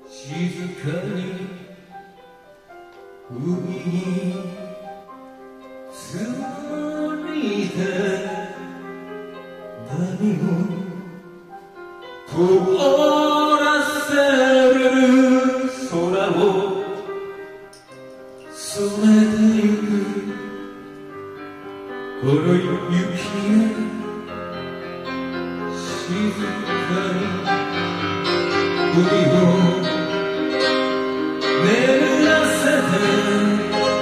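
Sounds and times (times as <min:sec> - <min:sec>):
man singing a slow ballad: 0:00.0 - 0:01.8, 0:03.3 - 0:05.1, 0:05.9 - 0:08.9, 0:09.8 - 0:11.3, 0:12.2 - 0:17.3, 0:18.5 - 0:20.9, 0:22.2 - 0:24.7, 0:25.7 - 0:30.5, 0:31.5 - 0:34.0
piano accompaniment: 0:00.0 - 0:34.0.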